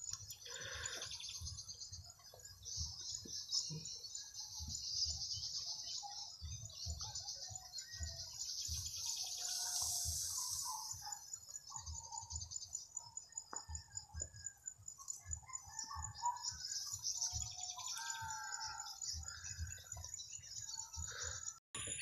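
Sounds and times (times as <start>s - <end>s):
birds chirping: 0.0s - 13.8s, 14.5s - 22.0s
high insect trill: 7.8s - 12.9s.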